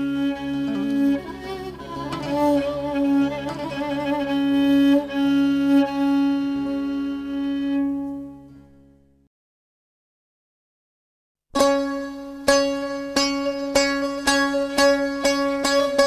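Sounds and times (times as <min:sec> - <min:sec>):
steady drone: 0:00.0 - 0:07.9
bowed string melody: 0:00.0 - 0:09.2, 0:11.6 - 0:16.0.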